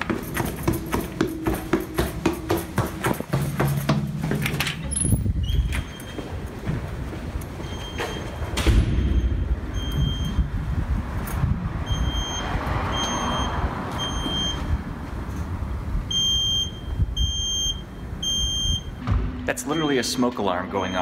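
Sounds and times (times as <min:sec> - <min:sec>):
smoke alarm beeping: 0:09.0 - 0:10.5, 0:11.9 - 0:12.4, 0:16.1 - 0:21.0
low thumps: 0:19.0 - 0:19.8.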